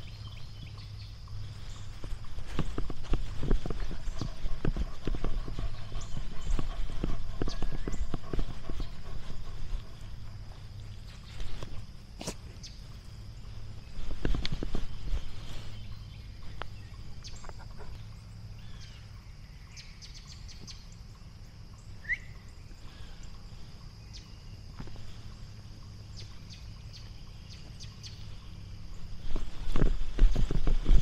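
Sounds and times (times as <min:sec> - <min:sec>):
steady high-pitched hum: 0:00.0 - 0:31.0
footsteps: 0:01.5 - 0:16.8, 0:29.0 - 0:31.0
rising bird chirp: 0:21.7 - 0:23.4.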